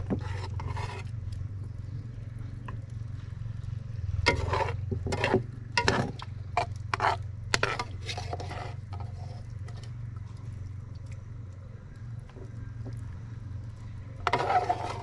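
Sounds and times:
utensil scraping in a pot: 0.0s - 1.4s, 4.0s - 10.4s, 14.1s - 15.0s
steady low hum: 0.0s - 15.0s.

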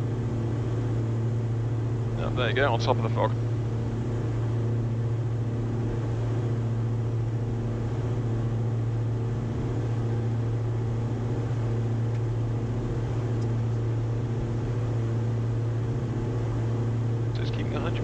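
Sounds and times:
aircraft engines droning in cockpit: 0.0s - 18.0s.

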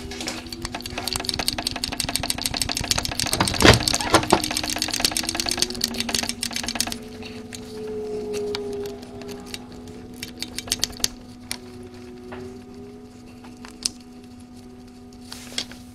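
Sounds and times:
steady low hum: 0.0s - 15.9s
ratchet wrench clicking: 0.5s - 7.1s, 10.2s - 11.2s.

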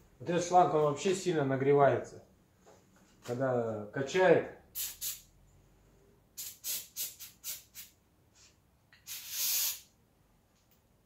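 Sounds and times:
aerosol can spraying: 4.8s - 5.2s, 6.4s - 8.0s, 9.0s - 9.9s.

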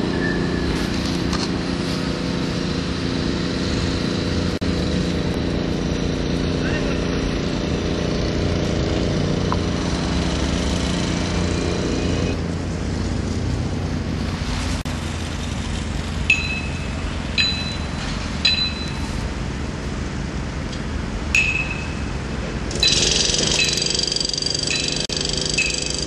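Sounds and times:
machine engine running: 0.0s - 26.0s
metallic clinks: 16.3s - 19.1s, 21.4s - 26.0s.

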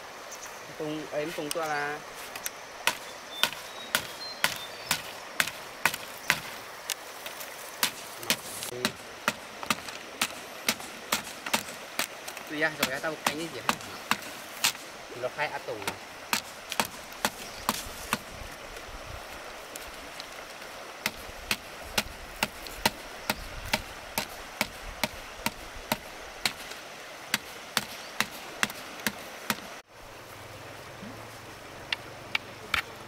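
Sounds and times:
stream rushing: 0.0s - 33.0s
blade chopping bamboo: 2.8s - 6.6s, 7.8s - 14.9s, 15.8s - 18.3s, 21.0s - 29.8s.

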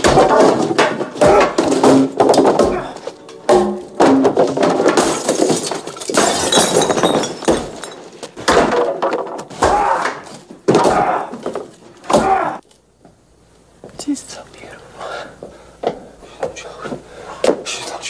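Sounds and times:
loud crashes and breaking: 0.0s - 12.4s.

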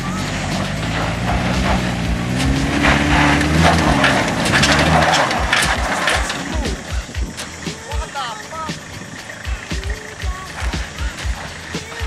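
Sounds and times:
truck engine working hard: 0.0s - 12.0s
tyres crunching over gravel: 0.0s - 12.0s.

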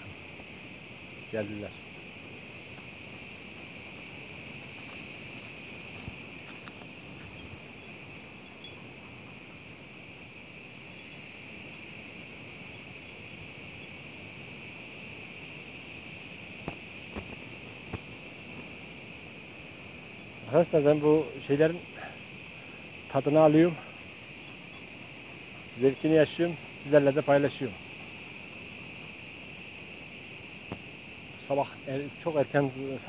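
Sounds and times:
insects buzzing drone: 0.0s - 33.0s.

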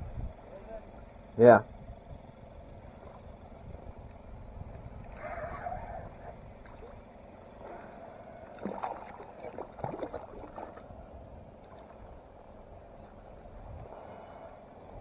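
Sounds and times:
steady low rumble: 0.0s - 15.0s
fish splashing at water surface: 7.6s - 10.9s.

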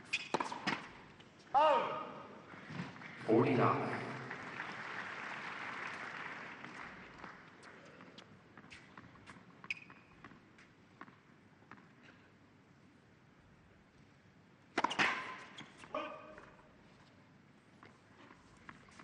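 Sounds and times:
tennis ball bouncing: 0.1s - 0.9s, 14.8s - 15.7s
racket striking ball: 14.8s - 15.5s.

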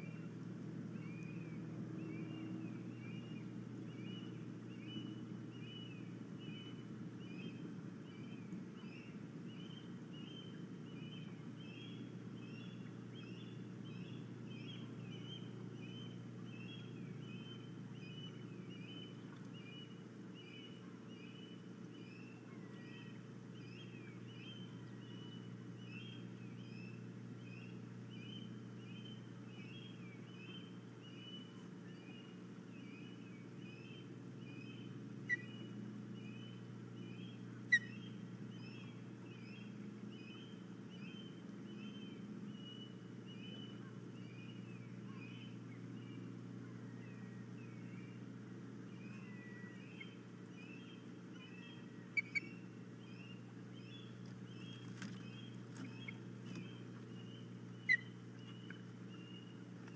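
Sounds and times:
low hum: 0.0s - 59.9s
osprey chirping: 49.0s - 59.6s.

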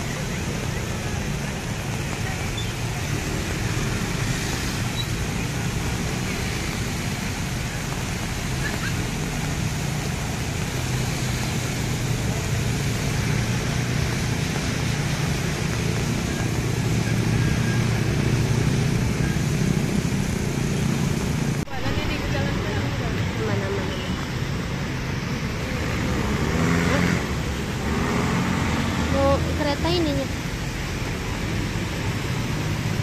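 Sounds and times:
heavy rain hiss: 0.0s - 33.0s
vehicles driving through water: 0.0s - 33.0s.

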